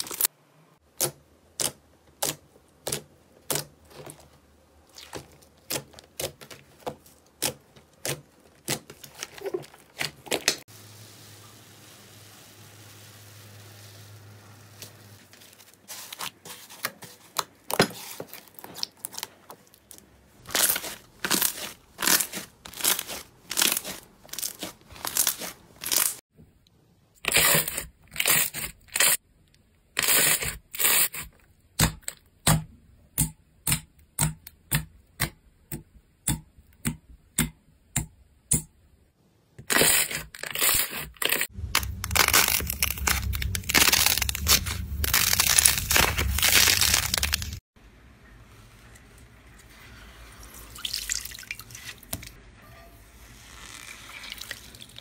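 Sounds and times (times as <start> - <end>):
slime squishing: 0.9 - 10.6, 15.3 - 26.2, 39.6 - 47.6.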